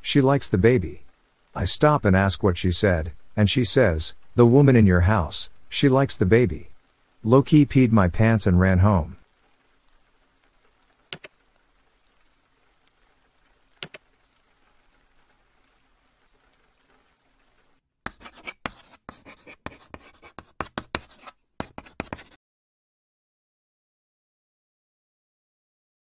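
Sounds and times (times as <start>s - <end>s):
faint rain: 0.0s - 22.3s
sharp ticks: 11.1s - 11.4s
pencil scribbling: 18.1s - 22.4s.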